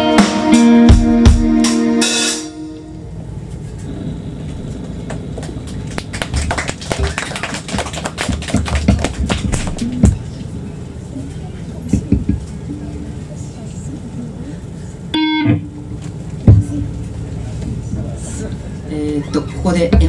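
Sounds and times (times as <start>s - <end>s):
live rock band playing: 0.0s - 3.0s, 15.2s - 17.6s
audience clapping: 4.8s - 10.1s.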